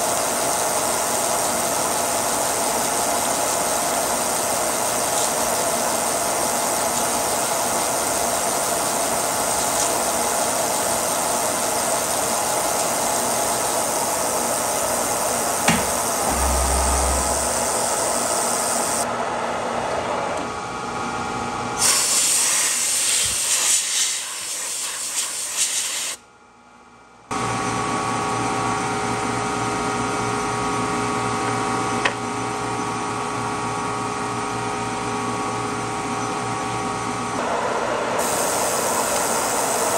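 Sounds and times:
milling machine whine: 0.0 - 19.1, 37.1 - 39.9
coolant spray hissing: 21.8 - 26.2, 38.2 - 39.9.

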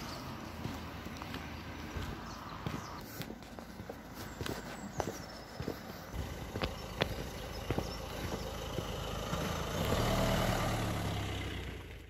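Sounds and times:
footsteps on paving: 0.0 - 10.6
car driving past: 6.1 - 12.0.

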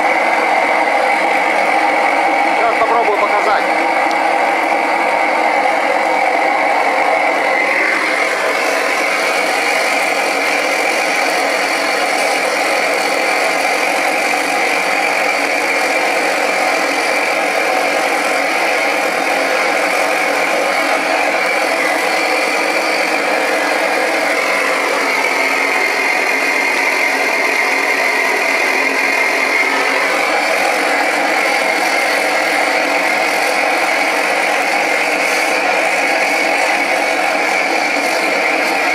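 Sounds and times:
gas burner flame roaring: 0.0 - 38.9.

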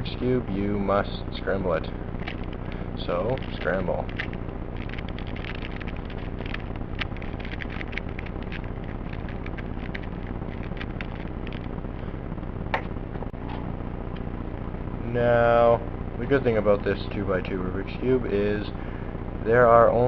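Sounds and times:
steady low hum: 0.0 - 20.0
puzzle cube clicking: 3.4 - 11.7.

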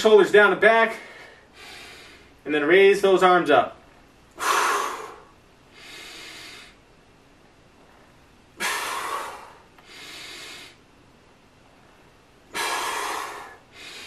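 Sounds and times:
man breathing hard: 0.9 - 2.4, 4.3 - 6.8, 8.6 - 10.8, 12.5 - 14.0.

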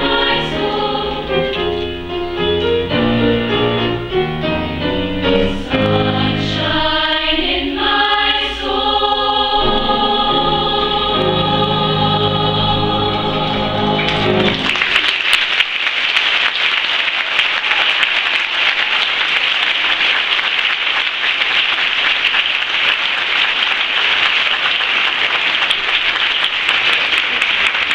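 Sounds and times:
choir singing final chord: 0.0 - 2.0, 5.4 - 14.8
audience applauding: 13.8 - 27.9.

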